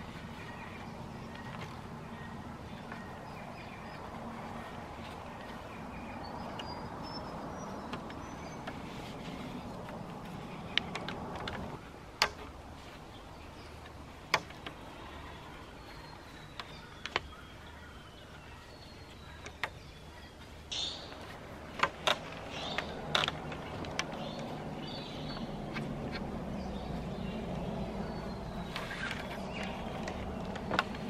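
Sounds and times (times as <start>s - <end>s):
faint bird calls: 0.0s - 12.0s, 12.9s - 31.0s
knocks of timber poles: 9.8s - 12.6s, 14.2s - 14.8s, 28.7s - 31.0s.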